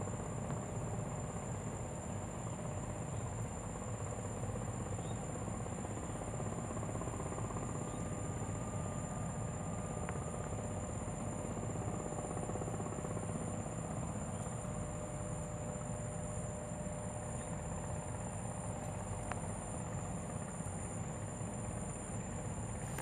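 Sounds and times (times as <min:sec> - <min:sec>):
insects droning: 0:00.0 - 0:23.0
low mechanical rumble: 0:15.7 - 0:23.0.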